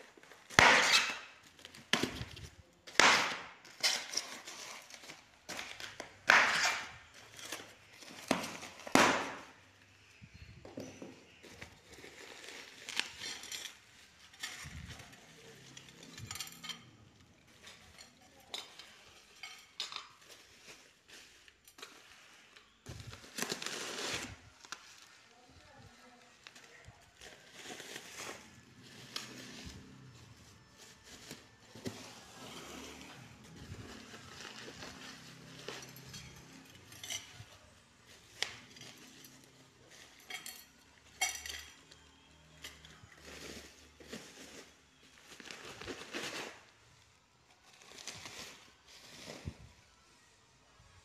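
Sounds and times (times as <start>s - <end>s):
sharp clinks of hard goods: 38.3s - 43.0s.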